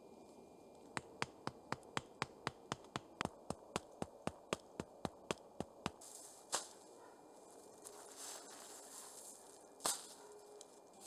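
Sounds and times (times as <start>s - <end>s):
stake being hammered knocks: 1.0s - 6.0s.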